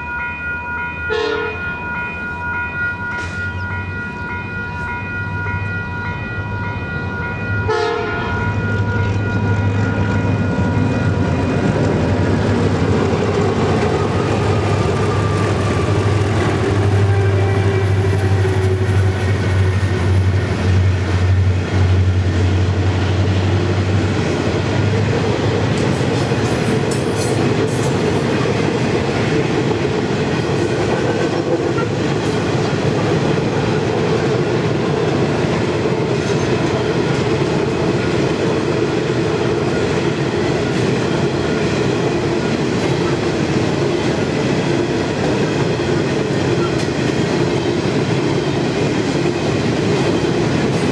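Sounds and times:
crossing bell ringing: 0.0 - 50.9
diesel locomotive engine drone: 0.0 - 50.9
train wheels clattering on rails: 3.0 - 50.9.

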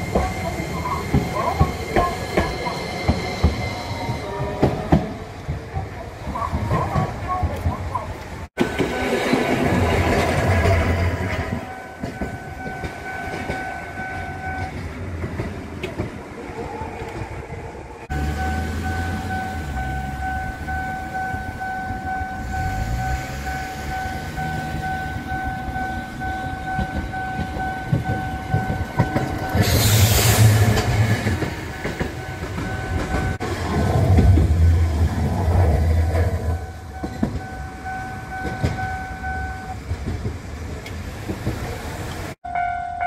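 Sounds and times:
streetcar rumble and wheel clatter: 0.0 - 43.0
tram passing close: 0.0 - 43.0
level crossing bell ringing: 18.2 - 29.6, 36.5 - 39.8, 42.4 - 43.0.

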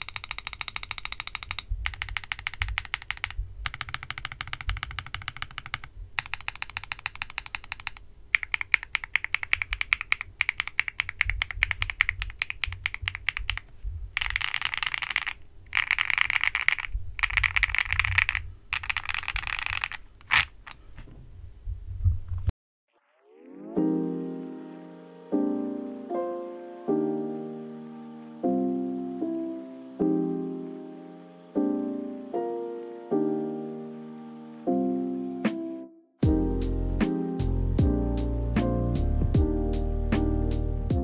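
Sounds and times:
mechanical keyboard typing: 0.0 - 20.8.

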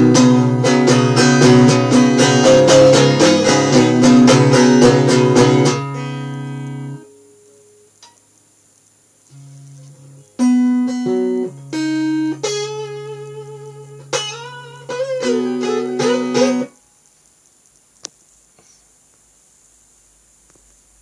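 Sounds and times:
guitar plucked notes and chords: 0.0 - 8.2, 9.3 - 16.8.

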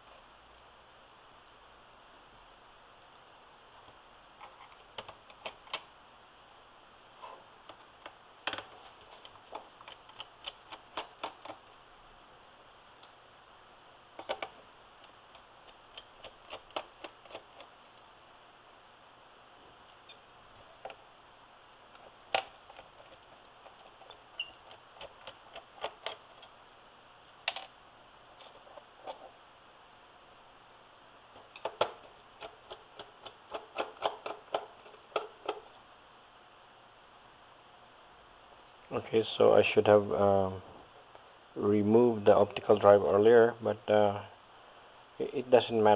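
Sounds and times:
screwdriver clicking on screws: 31.5 - 35.6.

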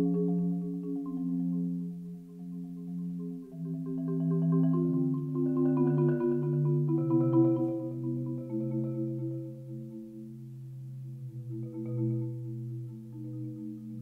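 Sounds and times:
marimba played with mallets: 0.0 - 14.0.

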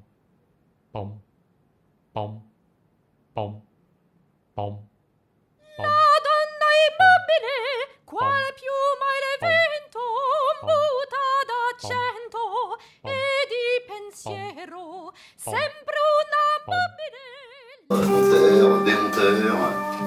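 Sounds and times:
high voice singing wordless melody: 2.2 - 2.5, 3.4 - 3.7, 4.6 - 4.9, 5.6 - 20.0
soft low beat: 8.1 - 8.5, 10.5 - 11.0, 11.8 - 12.1, 14.2 - 14.6.

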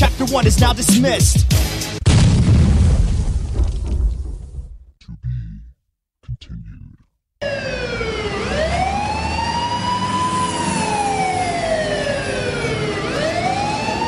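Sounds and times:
emergency siren wailing: 7.4 - 14.0.

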